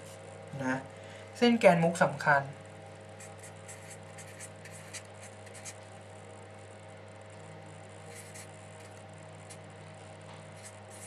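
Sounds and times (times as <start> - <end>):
low electrical hum: 0.0 - 11.0
marker scratching on paper: 3.2 - 5.8, 8.1 - 9.6, 10.6 - 11.0.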